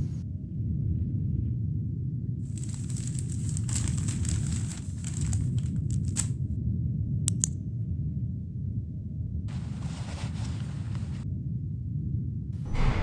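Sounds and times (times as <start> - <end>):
low rumbling ambience: 0.0 - 9.8, 11.2 - 13.0
crackling rustling noise: 2.5 - 6.5, 9.5 - 11.3
flashlight switch clicks: 7.3 - 7.5.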